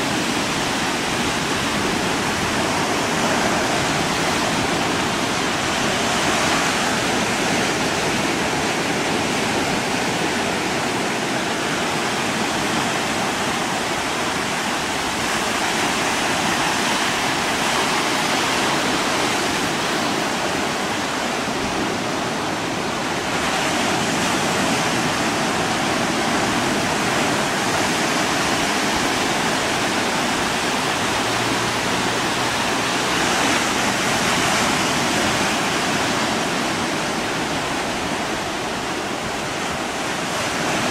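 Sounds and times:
choppy water rushing: 0.0s - 40.9s.

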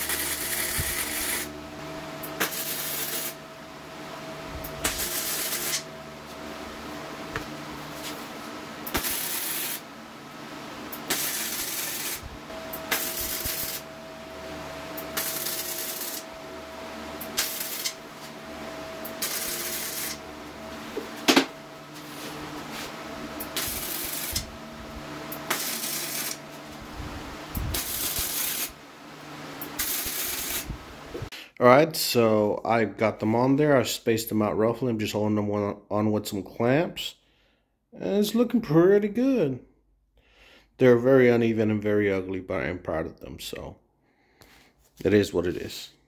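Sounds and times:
welder crackling bursts: 0.0s - 1.6s, 2.2s - 3.4s, 4.7s - 5.9s, 8.8s - 9.9s, 10.8s - 13.9s, 14.9s - 16.4s, 17.2s - 18.1s, 19.0s - 20.4s, 23.4s - 24.6s, 25.3s - 26.5s, 27.5s - 28.8s, 29.6s - 31.0s.

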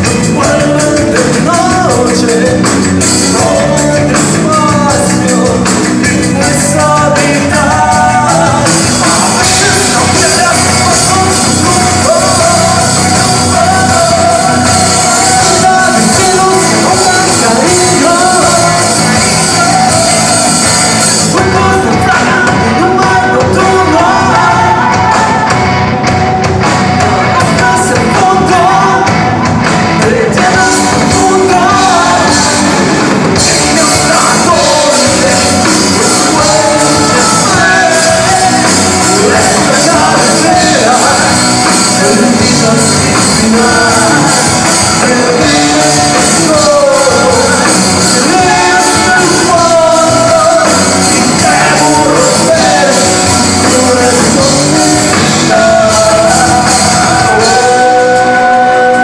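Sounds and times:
lead vocal singing: 0.0s - 59.0s
live rock band playing: 0.0s - 59.0s.

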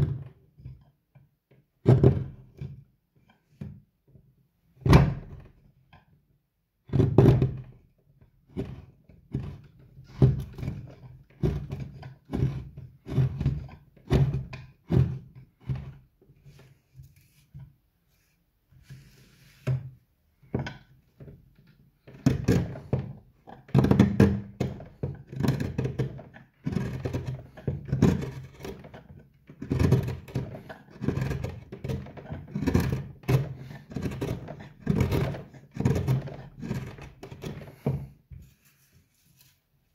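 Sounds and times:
gouge cutting wood: 24.6s - 29.0s, 29.6s - 38.0s.

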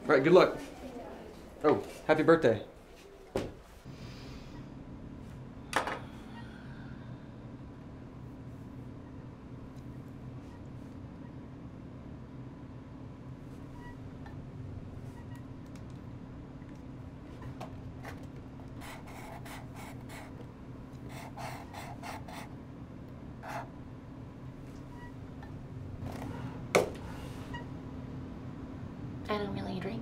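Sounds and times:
low room hum: 0.0s - 30.0s
marker rasping on cardboard: 18.8s - 20.4s, 21.1s - 22.5s.

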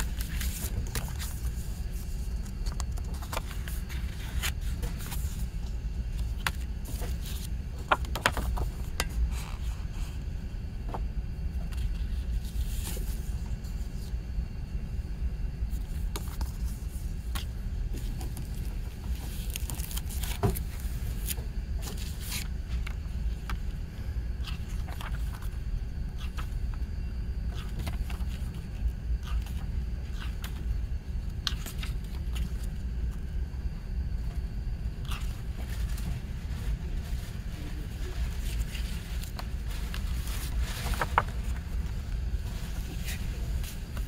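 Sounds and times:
paper rustling and clicks: 0.0s - 5.4s, 6.1s - 9.2s, 38.3s - 41.9s.

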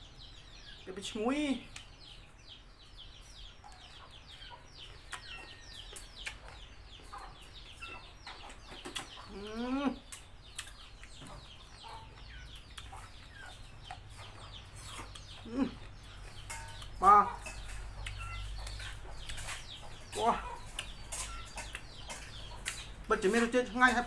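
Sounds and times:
chicks peeping: 0.0s - 24.0s
soft chewing clicks: 3.7s - 7.6s, 10.0s - 17.0s, 17.6s - 20.0s, 20.6s - 23.2s.

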